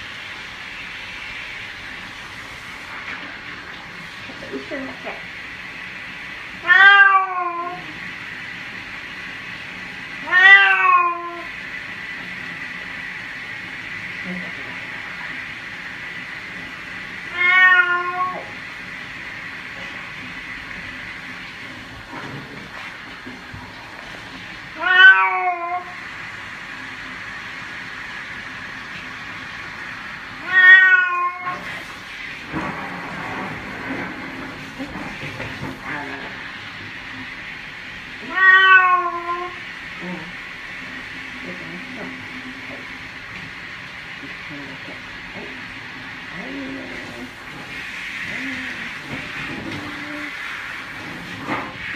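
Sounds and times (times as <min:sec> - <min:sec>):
cat meowing: 0:06.6 - 0:07.9, 0:10.2 - 0:11.5, 0:17.3 - 0:18.6, 0:24.8 - 0:26.0, 0:30.4 - 0:31.6, 0:38.2 - 0:39.6.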